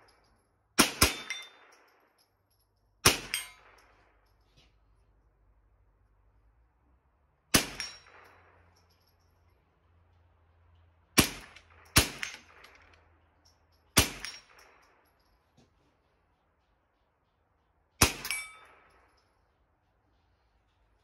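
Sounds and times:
rifle shots with ringing tail: 0:00.0 - 0:02.3, 0:03.0 - 0:04.4, 0:07.5 - 0:09.2, 0:11.1 - 0:13.2, 0:13.9 - 0:15.6, 0:18.0 - 0:19.6.

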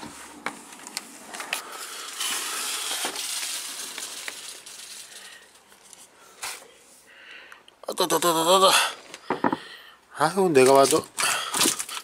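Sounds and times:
handling noise rustling and scraping: 0:00.0 - 0:07.0.

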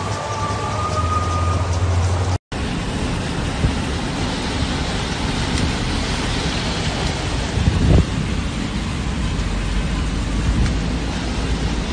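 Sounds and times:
traffic on flooded road: 0:00.0 - 0:11.9
vehicle engine hum: 0:00.0 - 0:11.9
rain hiss: 0:02.6 - 0:11.9.

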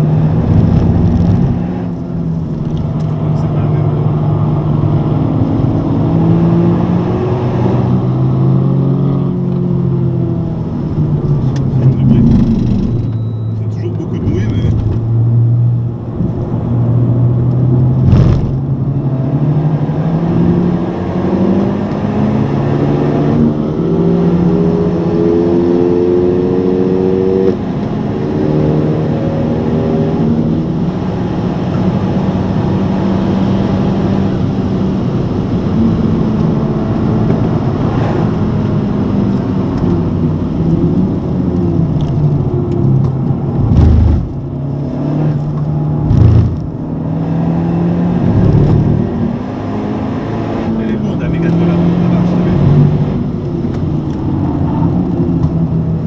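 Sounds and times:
car engine at full throttle: 0:00.0 - 0:56.0
sharp thump: 0:18.0 - 0:18.6.

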